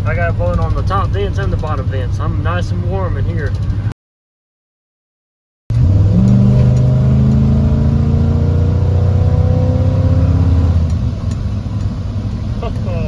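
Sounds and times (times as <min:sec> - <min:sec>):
pickup engine accelerating: 0:05.7 - 0:13.0.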